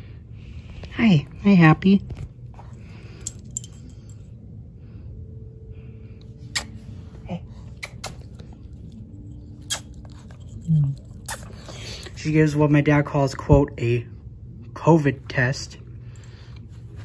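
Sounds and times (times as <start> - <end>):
low room hum: 0.0 - 17.0
metal collar tags clinking: 2.5 - 4.3, 9.2 - 12.2.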